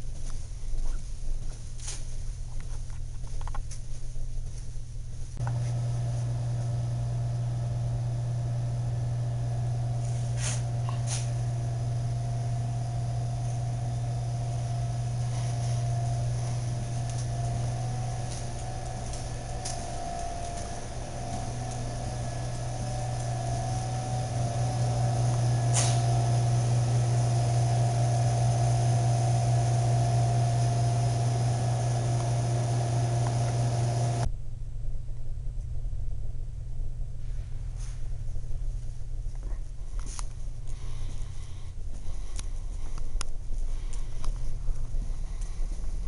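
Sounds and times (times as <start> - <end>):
low mechanical drone: 5.0 - 46.0
hiss: 10.0 - 32.3.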